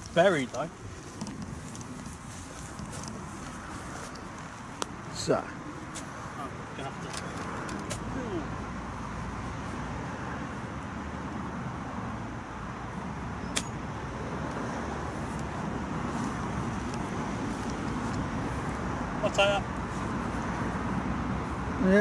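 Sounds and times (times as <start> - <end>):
golf club striking ball: 13.5 - 13.8.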